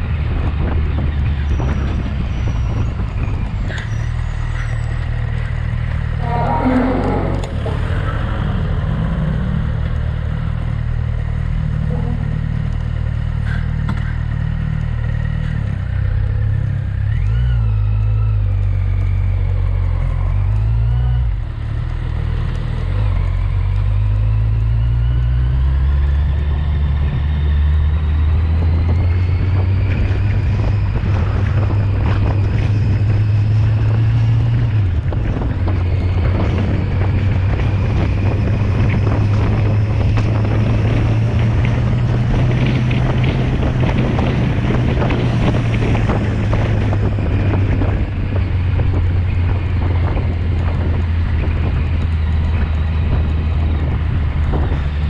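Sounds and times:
wind rumble on microphone: 0.0s - 55.0s
motorcycle engine running: 5.1s - 17.7s, 27.8s - 55.0s.

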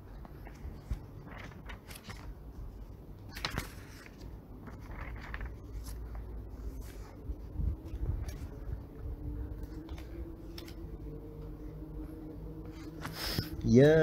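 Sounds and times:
small clicks and rustles: 0.1s - 2.4s, 3.3s - 7.1s
low hum: 4.6s - 14.0s.

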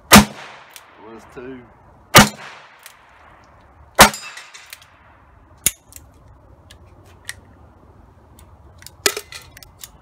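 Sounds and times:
revolver gunshot: 0.1s - 0.8s, 2.1s - 2.8s.

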